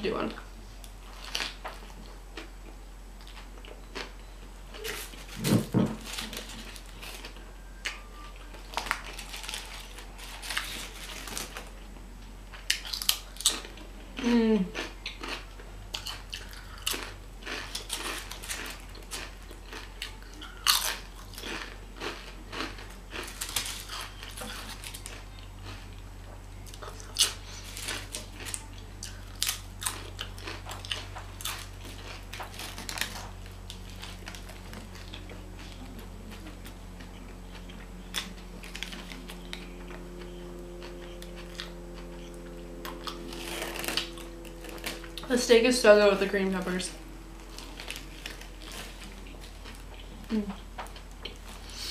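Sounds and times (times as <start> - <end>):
crunching and chewing chips: 0.8 - 51.9.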